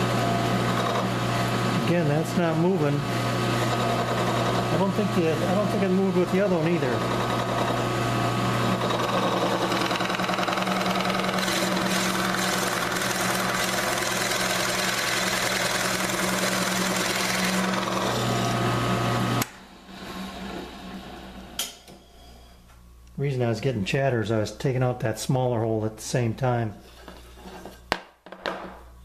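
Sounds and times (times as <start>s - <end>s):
drill press boring into wood: 0.0s - 20.8s.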